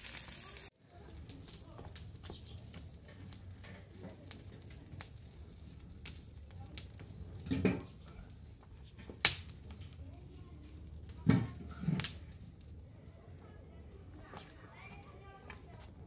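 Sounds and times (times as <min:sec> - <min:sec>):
wood fire crackling: 0:00.0 - 0:16.0
burning sticks knocking: 0:01.3 - 0:10.0, 0:10.6 - 0:12.3.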